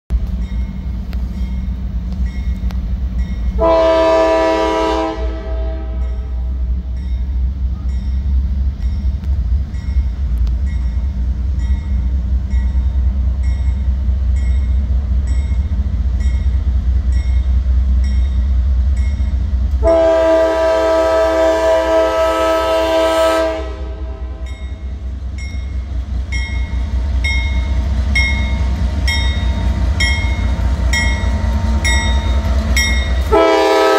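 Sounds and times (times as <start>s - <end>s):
diesel engine rumbling: 0.1s - 33.9s
locomotive air horn: 3.6s - 6.4s, 19.8s - 24.6s, 33.2s - 33.9s.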